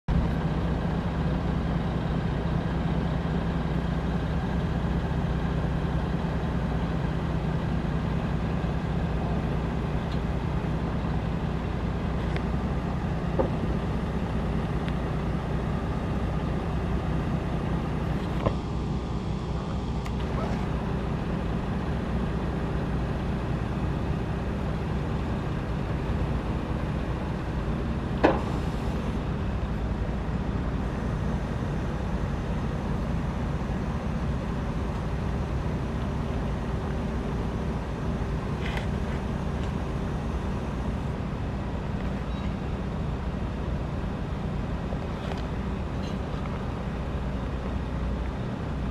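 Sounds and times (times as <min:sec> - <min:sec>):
diesel engine running: 0:00.1 - 0:48.9
hydraulic chute moving: 0:24.6 - 0:33.8.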